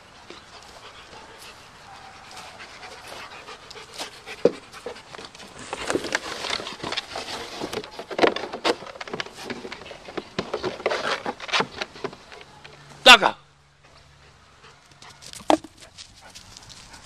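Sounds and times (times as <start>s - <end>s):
dog panting: 0.0s - 5.8s.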